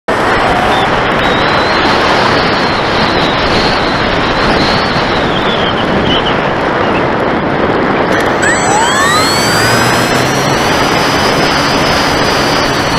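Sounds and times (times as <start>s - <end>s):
wind rushing over microphone: 0.1s - 12.9s
faint electric motor whine: 8.1s - 12.9s.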